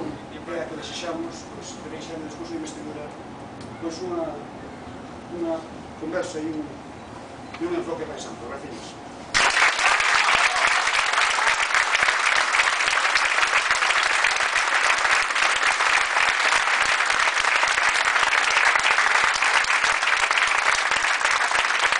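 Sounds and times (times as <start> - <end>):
crowd applauding: 9.3 - 21.9.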